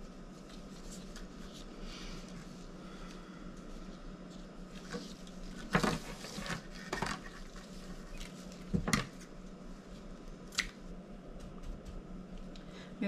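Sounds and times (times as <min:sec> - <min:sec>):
steady low hum: 0:00.0 - 0:13.0
ribbon rustling scrapes: 0:00.3 - 0:08.7.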